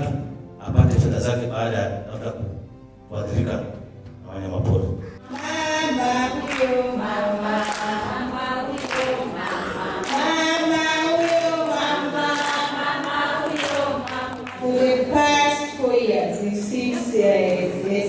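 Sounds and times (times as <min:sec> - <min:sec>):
choir singing long notes: 0:05.2 - 0:15.8.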